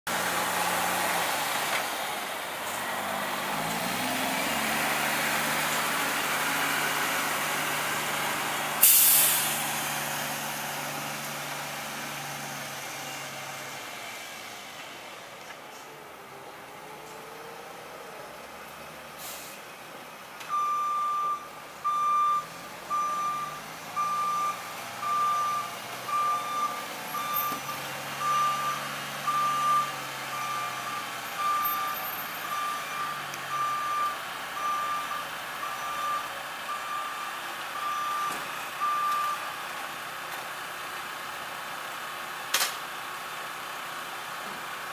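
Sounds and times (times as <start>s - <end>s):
truck back-up alarm beeping: 20.5s - 39.5s.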